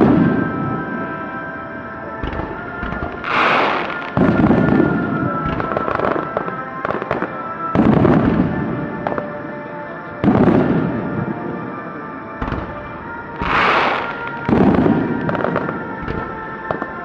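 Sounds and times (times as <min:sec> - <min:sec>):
deep booms of fireworks bursting: 0:00.0 - 0:01.2, 0:02.2 - 0:09.3, 0:10.2 - 0:11.6, 0:12.3 - 0:17.0
firework crackles: 0:02.2 - 0:09.3, 0:12.4 - 0:17.0
firework hissing rush: 0:03.1 - 0:04.5, 0:13.4 - 0:14.4.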